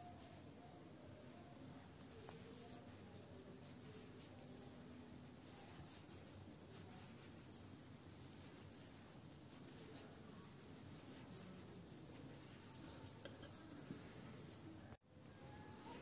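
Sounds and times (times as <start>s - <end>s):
yarn rubbing on crochet hook: 1.8s - 14.3s.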